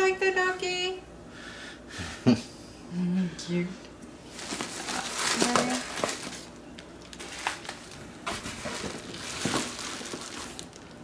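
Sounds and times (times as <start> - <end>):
bubble wrap rustling and crinkling: 4.3 - 11.0.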